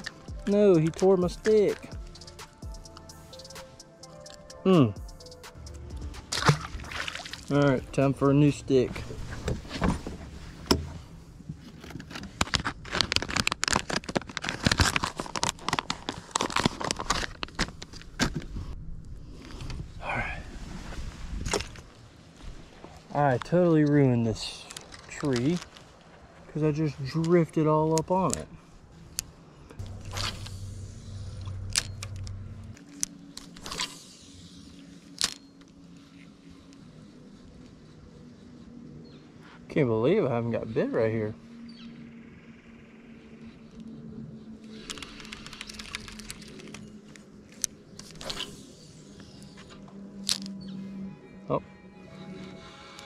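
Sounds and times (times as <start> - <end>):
plastic packaging crinkling: 12.0 - 18.1.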